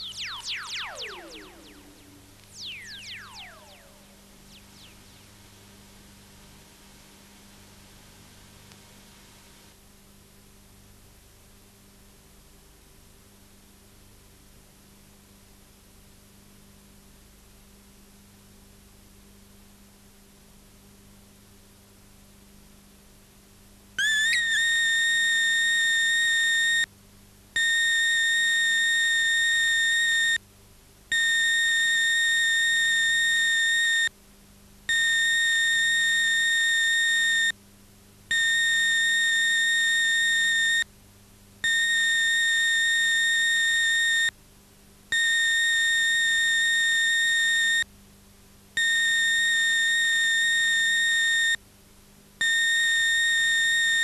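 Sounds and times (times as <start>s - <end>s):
high electronic beep: 0.0s - 4.2s.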